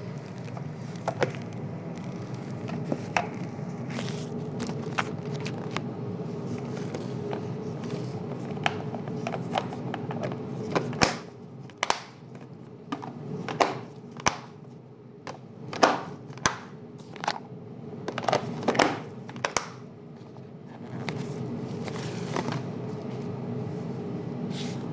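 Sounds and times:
steady low hum: 0.0 - 24.9
plastic containers knocking and clicking: 6.9 - 14.5, 15.3 - 17.4, 18.0 - 19.8.

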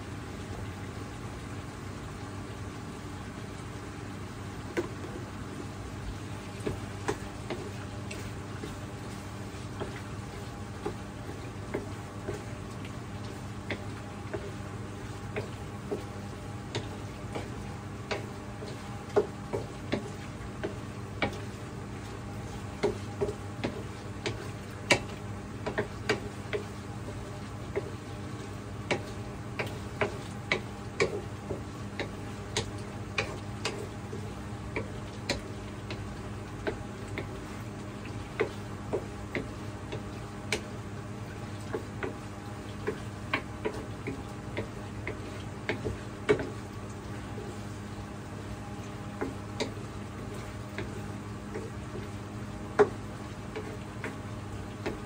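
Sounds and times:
steady low hum: 0.0 - 55.0
pork frying in a pan: 22.7 - 33.8.

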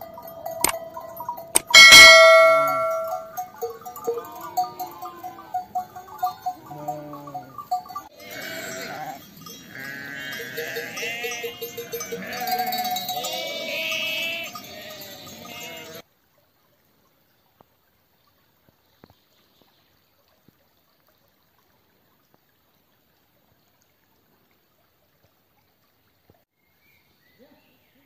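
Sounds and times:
loud bell-like chime: 0.0 - 6.6
sheep bleating: 4.2 - 16.0.

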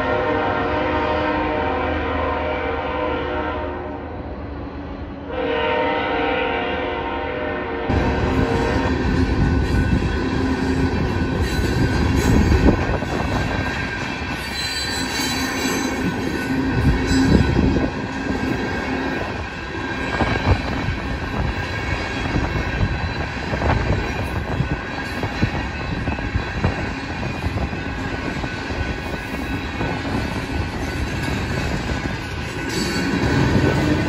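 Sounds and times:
train wheels rumbling on rails: 7.9 - 34.0
high-pitched wheel squeal: 8.3 - 17.9.

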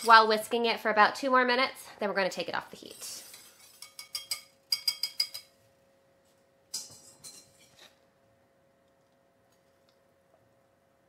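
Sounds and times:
whisk clinking against saucepan: 3.0 - 5.5.

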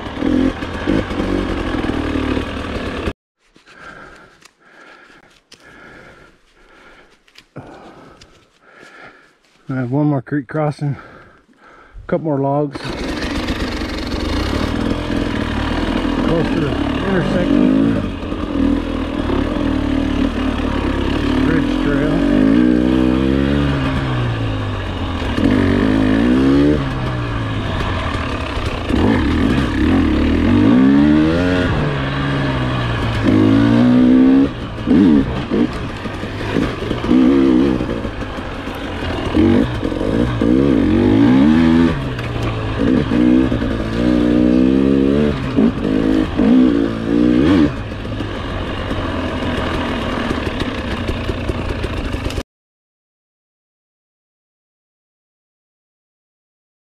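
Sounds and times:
dirt bike engine revving: 0.0 - 3.1, 12.7 - 52.4.

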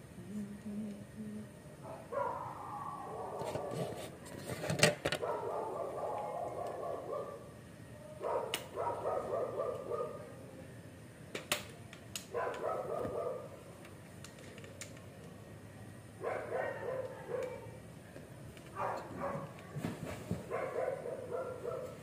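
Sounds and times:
dog barking: 1.8 - 3.9, 5.2 - 7.5, 8.2 - 10.3, 12.3 - 13.6, 16.2 - 17.8, 18.8 - 19.6, 20.4 - 22.0.

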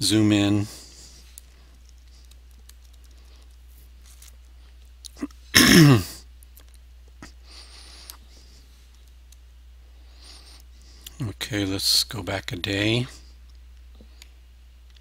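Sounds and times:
steady low hum: 0.0 - 15.0
man clearing his throat: 5.2 - 6.2.

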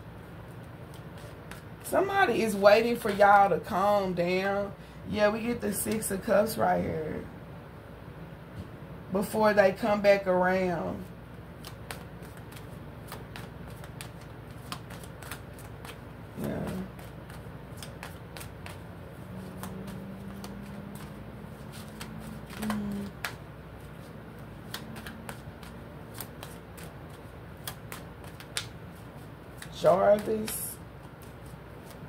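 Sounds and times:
cards being shuffled: 0.4 - 3.4, 11.5 - 32.0.

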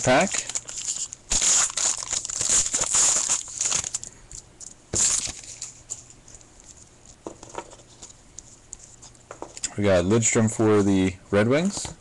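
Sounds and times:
wrapper tearing and crinkling: 0.0 - 4.1, 5.0 - 5.9.

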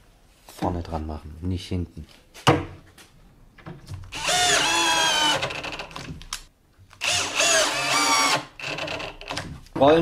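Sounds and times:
cordless drill whining: 4.1 - 5.8, 7.0 - 9.0.

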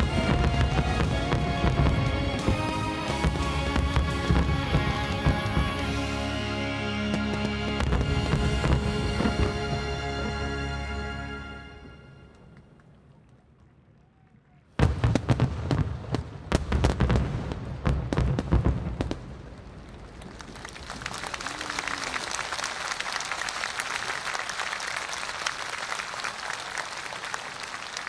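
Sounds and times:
crowd applauding: 19.8 - 28.0.

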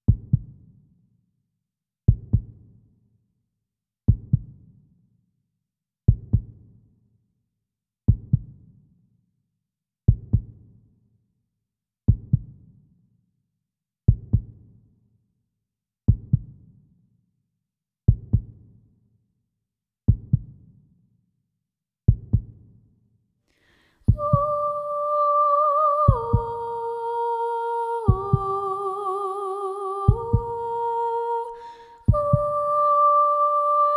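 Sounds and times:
heartbeat thumps: 24.1 - 24.5, 26.1 - 26.6, 28.1 - 28.6, 30.1 - 30.6, 32.1 - 32.6.

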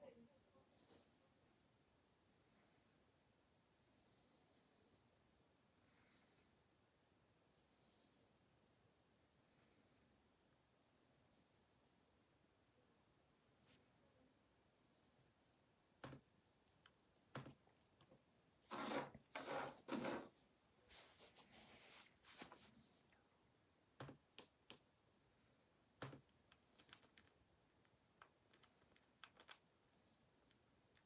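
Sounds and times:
faint clicks and taps: 16.0 - 18.3, 23.9 - 24.9, 26.0 - 31.0.

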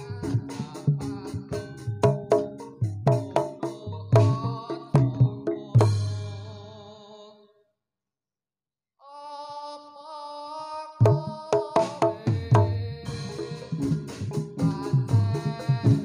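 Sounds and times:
hand drum strokes: 0.0 - 6.4
fast percussive ensemble beat: 0.0 - 6.5, 11.1 - 16.0.

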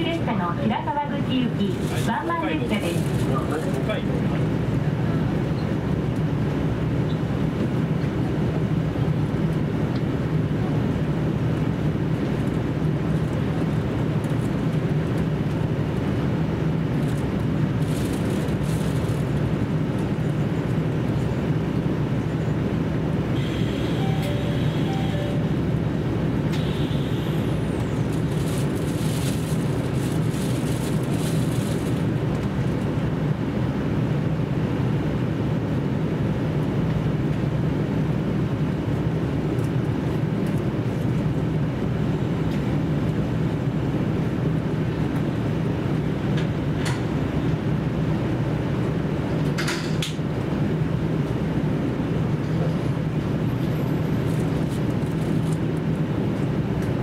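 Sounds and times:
diesel engine drone: 0.0 - 57.0
wheel and rail rumble: 0.0 - 57.0.

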